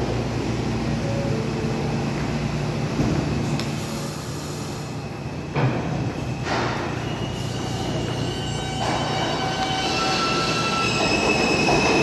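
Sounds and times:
subway train rumble and hum: 0.0 - 12.0.

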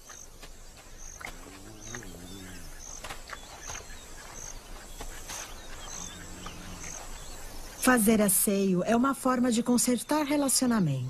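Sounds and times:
faint bird calls: 0.0 - 11.0
hyena low groan: 1.3 - 2.8, 5.5 - 7.4.

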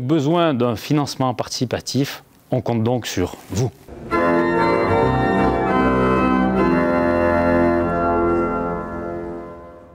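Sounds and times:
pipe organ chords: 3.9 - 9.9.

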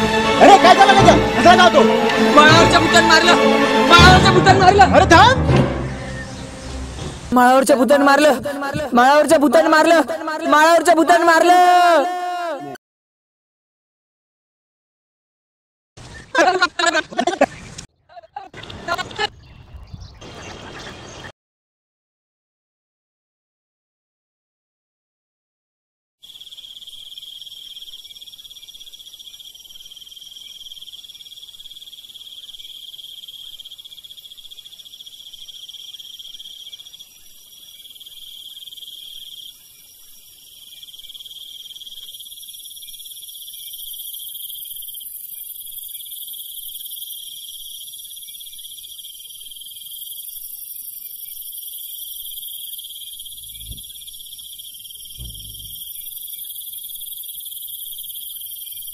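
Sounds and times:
crickets and insects trilling: 26.2 - 58.9
low thump: 53.4 - 54.0, 55.1 - 55.8.

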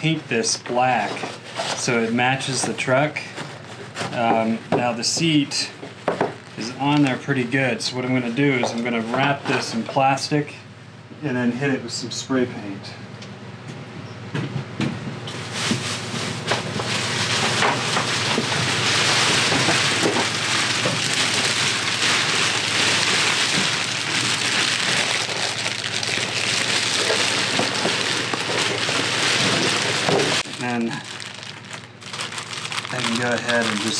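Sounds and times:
plastic sheeting crinkling: 15.4 - 33.9.

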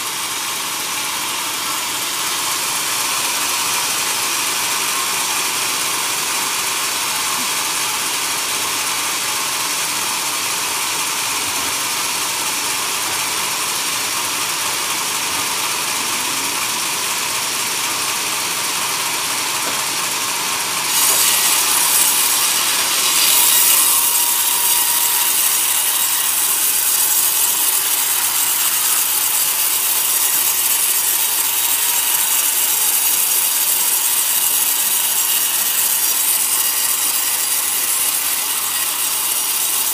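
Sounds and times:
band saw ripping log: 20.7 - 37.8.

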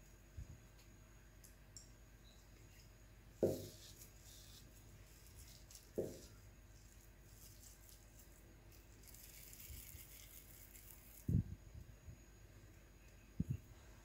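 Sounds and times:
hands rolling cookie dough: 2.5 - 11.4.

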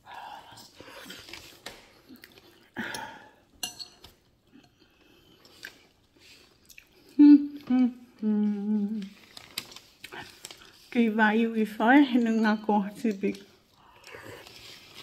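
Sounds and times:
woman chewing: 0.5 - 8.3
woman humming mm: 7.1 - 9.2.

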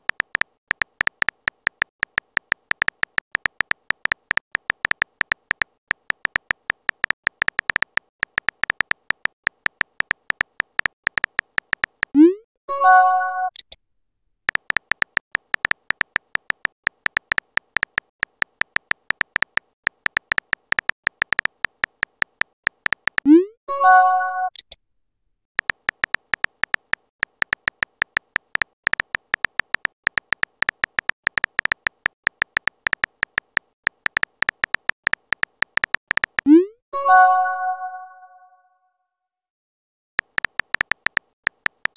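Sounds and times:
phone keyboard typing clicks: 0.0 - 12.2, 14.5 - 23.4, 25.6 - 36.6, 40.2 - 41.9
brief message chime: 23.7 - 24.5, 37.0 - 38.6.

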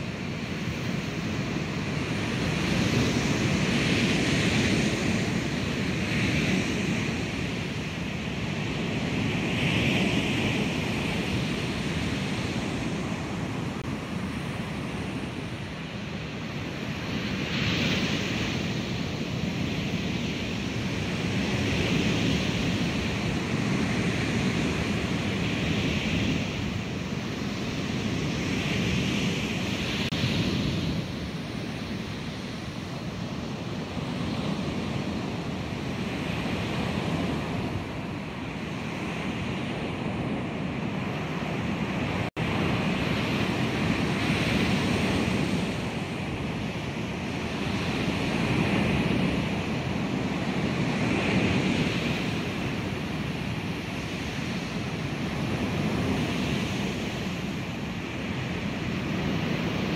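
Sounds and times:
ocean waves crashing on shore: 0.0 - 59.9.

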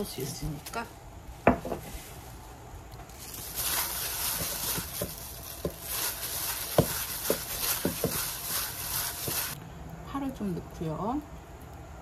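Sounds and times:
gloved hand squishing wet radish: 2.9 - 9.6.

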